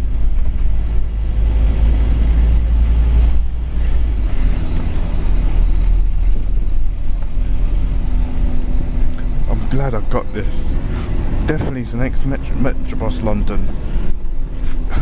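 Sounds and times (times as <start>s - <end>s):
bus diesel engine rumble: 0.0s - 15.0s.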